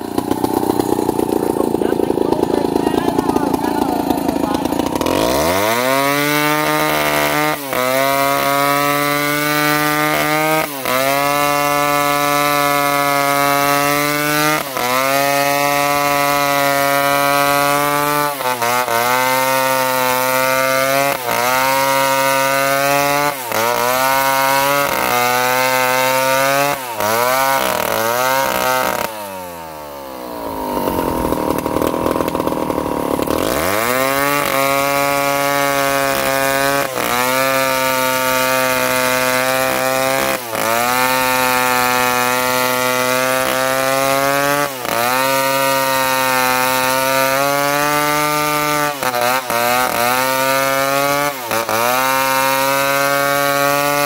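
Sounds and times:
chainsaw revving while cutting: 0.0 - 54.0.

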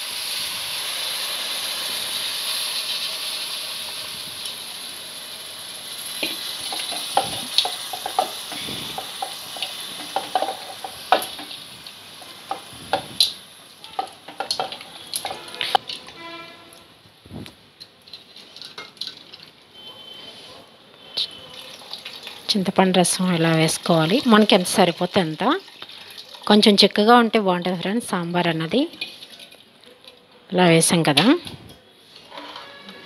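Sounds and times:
vegetables sizzling in hot oil: 0.0 - 16.3, 21.2 - 29.6
metal spatula scraping a pot: 32.1 - 33.0.

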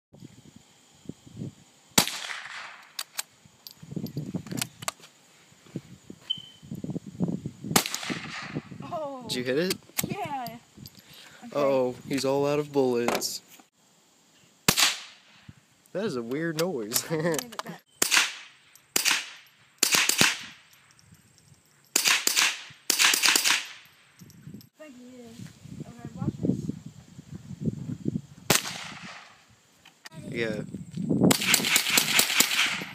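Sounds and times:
rifle shot: 2.0 - 3.0, 7.7 - 8.6, 14.7 - 15.2, 18.0 - 20.6, 22.0 - 23.8, 28.5 - 29.3, 31.3 - 32.9.

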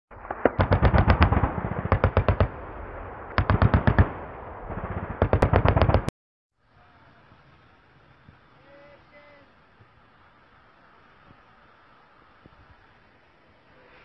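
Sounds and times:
machine-gun fire: 0.2 - 6.1.

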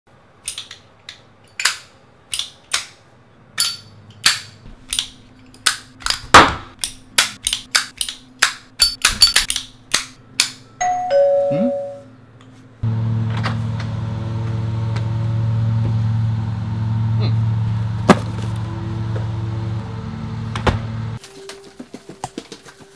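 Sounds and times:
two-tone doorbell chime: 10.8 - 12.2
steady low hum: 12.1 - 21.2.

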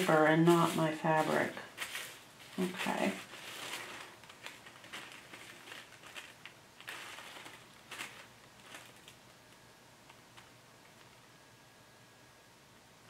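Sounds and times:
paper rustling and crinkling: 0.0 - 9.3.

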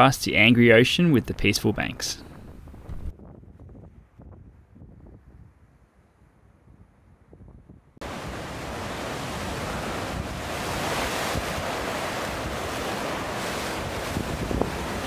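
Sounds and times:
wind blowing on microphone: 1.4 - 15.0
ocean surf rushing: 8.0 - 15.0.

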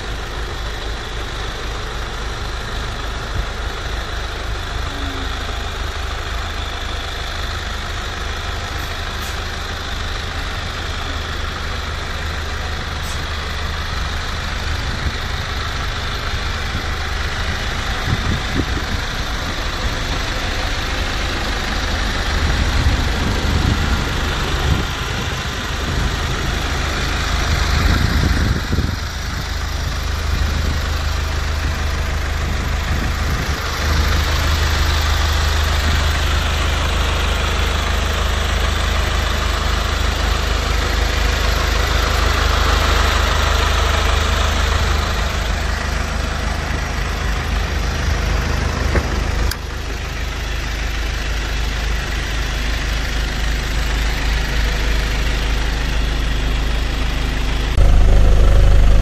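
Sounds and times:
minibus engine idling: 0.0 - 59.0.

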